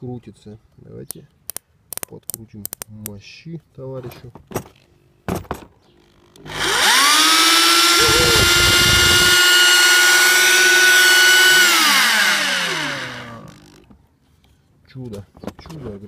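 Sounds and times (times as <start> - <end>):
rotary hammer motor whining: 6.1 - 13.9.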